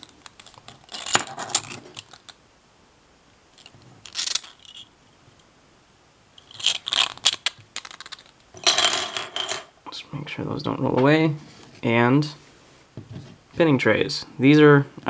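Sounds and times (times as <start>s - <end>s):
plastic pieces clicking and clattering: 0.0s - 2.4s, 3.6s - 4.9s, 6.4s - 9.7s.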